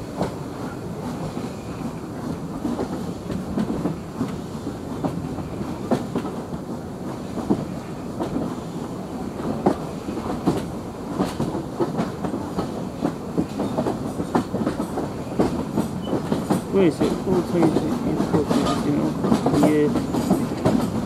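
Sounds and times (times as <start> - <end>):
train wheels rumbling on rail: 0.0 - 21.0
wheels clacking over rail joints: 9.5 - 21.0.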